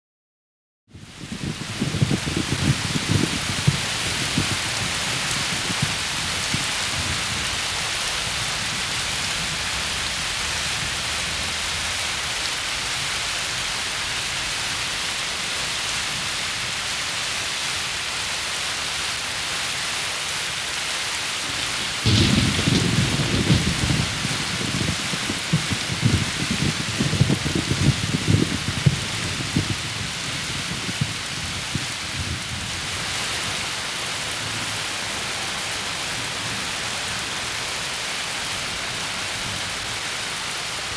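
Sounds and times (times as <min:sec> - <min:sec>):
heavy rain hissing: 0:00.9 - 0:40.9
thunderclap and rolling thunder: 0:01.2 - 0:07.8, 0:21.4 - 0:32.8.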